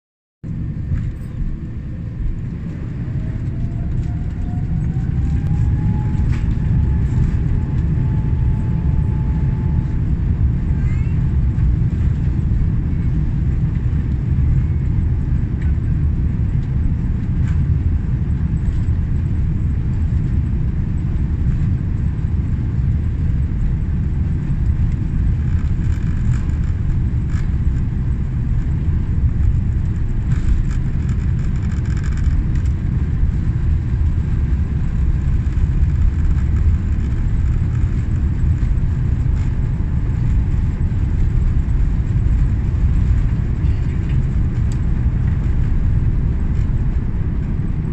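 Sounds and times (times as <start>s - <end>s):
jet engines rumbling: 0.4s - 47.9s
thin engine whine: 0.5s - 15.9s
wheels on runway: 0.5s - 47.9s.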